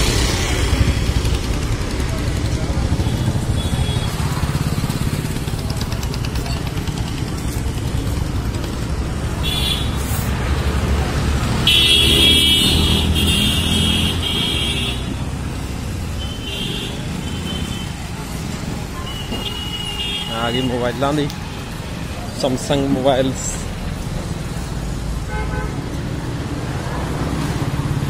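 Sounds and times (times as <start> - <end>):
traffic rumble: 0.0 - 28.0
vehicle horns honking: 9.4 - 10.1, 11.6 - 15.3, 19.0 - 21.8, 25.2 - 25.8.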